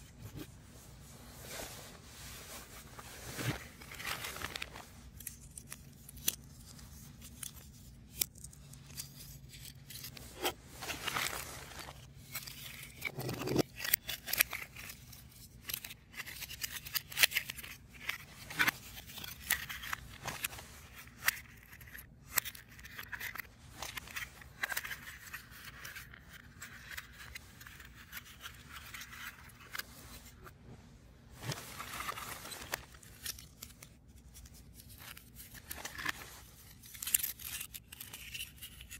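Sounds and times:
puzzle pieces scraping: 8.4 - 30.5, 34.8 - 38.9.

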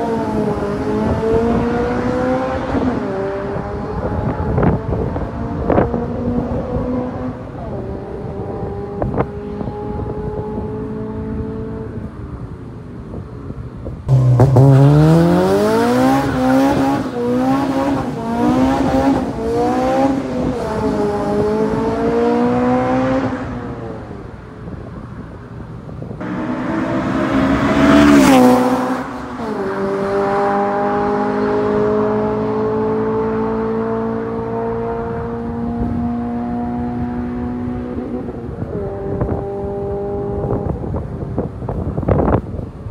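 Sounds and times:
car engine revving: 14.1 - 24.3, 26.2 - 40.9.

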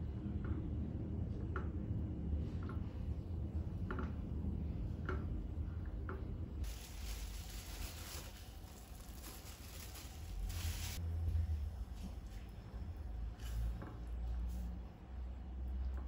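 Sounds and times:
low steady hum: 0.0 - 16.0
plastic bag crinkling: 6.6 - 11.0.

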